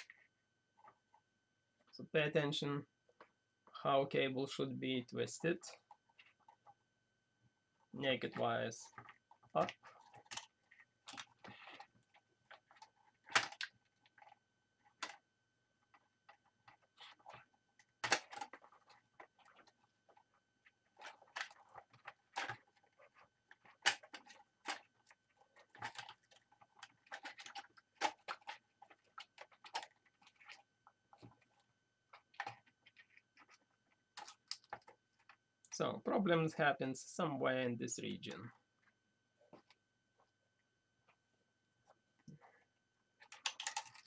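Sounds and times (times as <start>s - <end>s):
hands clicking and tapping plastic: 8.2s - 15.2s, 15.9s - 35.8s, 43.2s - 44.0s.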